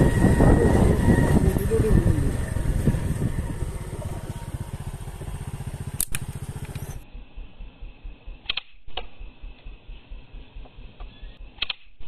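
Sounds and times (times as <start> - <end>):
small engine running: 0.0 - 7.5
soft low thumps: 7.0 - 11.1
sharp double click: 8.4 - 9.7, 10.6 - 12.0.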